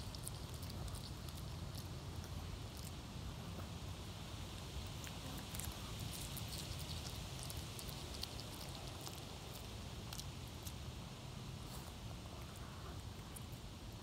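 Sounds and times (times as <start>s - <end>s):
dog chewing with crunching clicks: 0.0s - 3.0s
low steady rumble: 0.0s - 14.0s.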